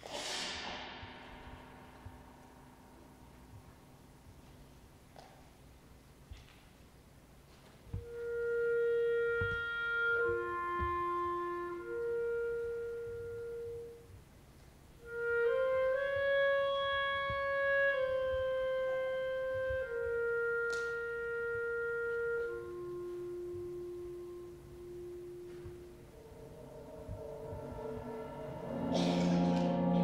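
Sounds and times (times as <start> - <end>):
clarinet slow melody: 7.9 - 14.3, 14.9 - 30.0.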